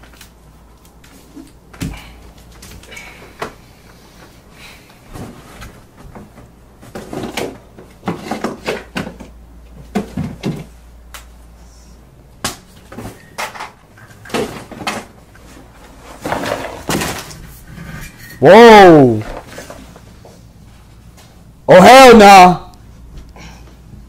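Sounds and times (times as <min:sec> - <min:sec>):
knocks and clunks of objects: 0:05.1 - 0:10.8, 0:12.4 - 0:17.5.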